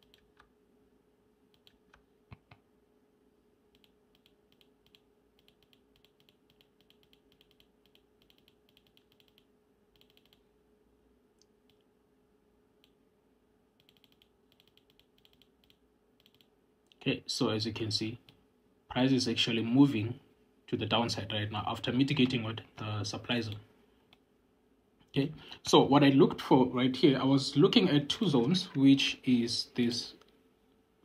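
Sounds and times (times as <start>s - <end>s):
computer keys clicking: 0.0s - 0.5s, 1.5s - 2.6s, 3.7s - 10.5s, 13.8s - 17.0s
faint steady hum: 0.0s - 31.0s.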